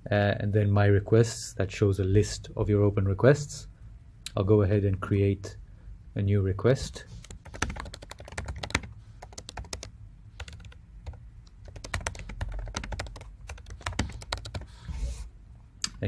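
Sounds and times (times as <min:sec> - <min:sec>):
typing on computer keyboard: 0:07.2 - 0:14.7.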